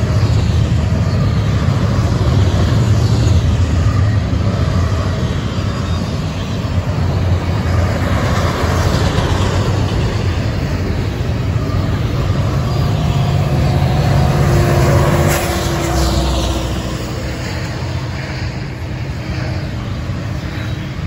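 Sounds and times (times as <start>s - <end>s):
diesel locomotive drone: 0.0s - 21.0s
train wheels rushing on rail: 0.0s - 21.0s.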